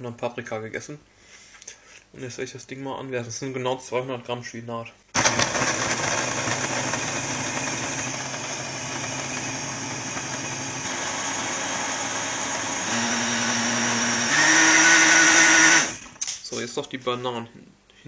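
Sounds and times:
blender running: 0:05.2 - 0:16.2.

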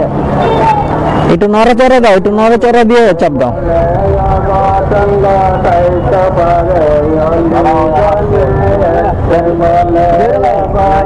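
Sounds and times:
steady low rumble: 0:03.1 - 0:11.0.

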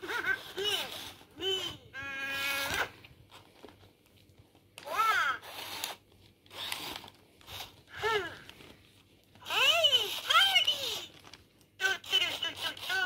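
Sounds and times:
toy motor whirring: 0:00.0 - 0:03.0, 0:04.8 - 0:08.3, 0:09.4 - 0:11.2, 0:11.8 - 0:13.0.

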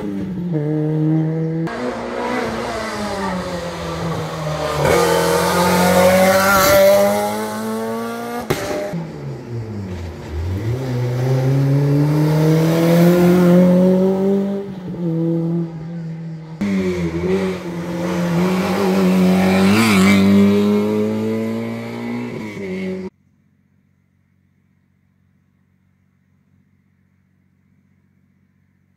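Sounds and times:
rally car engine accelerating: 0:00.0 - 0:23.1.

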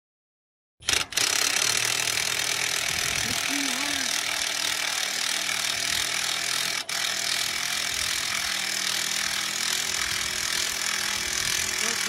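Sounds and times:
impact driver running: 0:00.8 - 0:12.0.

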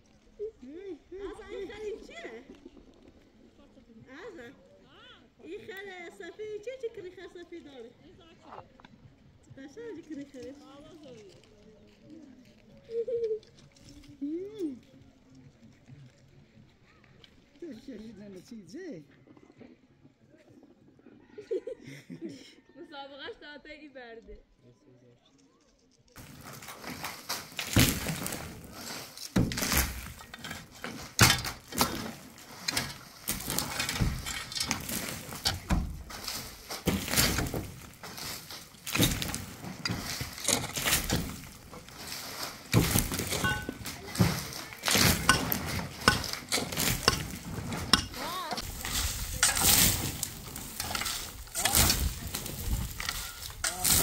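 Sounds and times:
shovels scraping earth and stones: 0:01.1 - 0:03.3, 0:26.2 - 0:54.0
dirt falling: 0:26.2 - 0:54.0.

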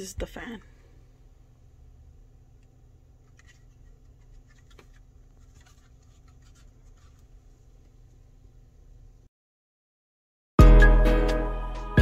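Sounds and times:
low steady fan hum: 0:00.0 - 0:09.3.

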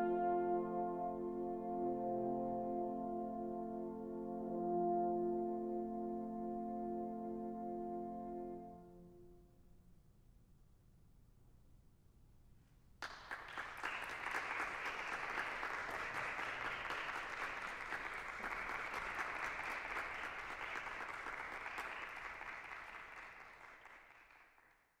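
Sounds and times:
audience applauding: 0:13.0 - 0:24.8.

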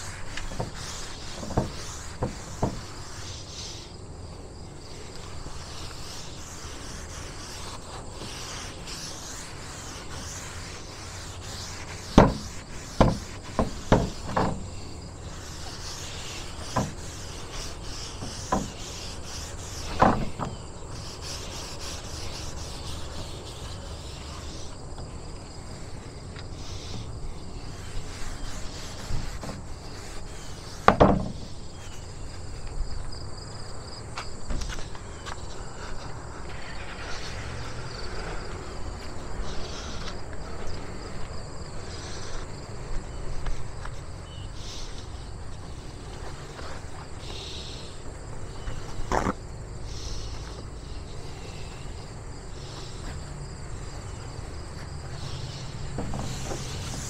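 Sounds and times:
rubbing on wooden board: 0:00.0 - 0:03.9, 0:04.9 - 0:24.8, 0:25.7 - 0:32.6, 0:44.6 - 0:57.0
insects chirping: 0:00.0 - 0:57.0
knocks on wooden board: 0:01.4 - 0:02.8, 0:12.2 - 0:14.6, 0:18.2 - 0:18.8, 0:30.9 - 0:31.4.

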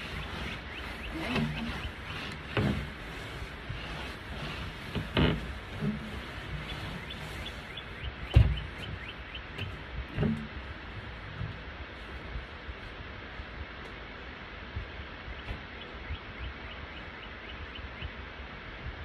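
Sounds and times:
small birds chirping: 0:00.0 - 0:10.3, 0:15.3 - 0:18.2
broom knocks and thumps: 0:00.0 - 0:12.4.

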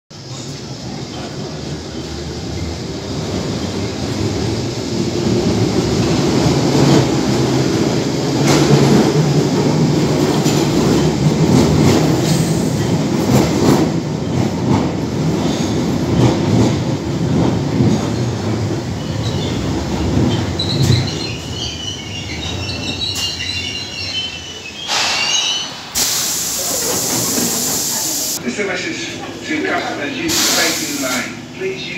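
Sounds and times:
train brakes squealing: 0:15.4 - 0:15.9, 0:17.9 - 0:28.4, 0:30.2 - 0:31.4.

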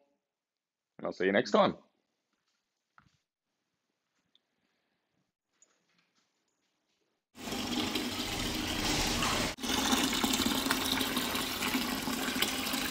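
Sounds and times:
water pouring into bucket: 0:07.4 - 0:12.9.

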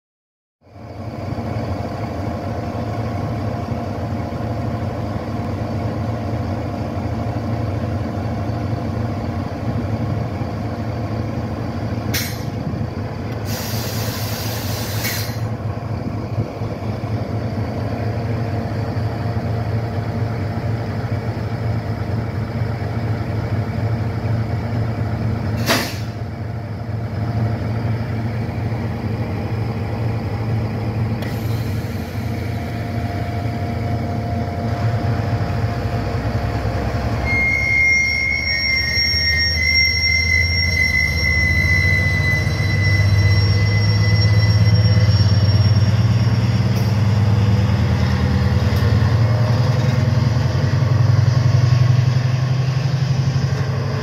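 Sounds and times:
diesel locomotive engine running: 0:00.6 - 0:54.0
compressed air hissing: 0:13.4 - 0:15.5.

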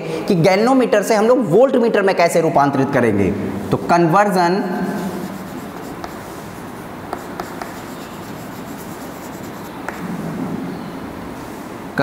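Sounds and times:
chalk scratching on chalkboard: 0:04.8 - 0:10.1
chalk tapping on board: 0:05.0 - 0:10.1.

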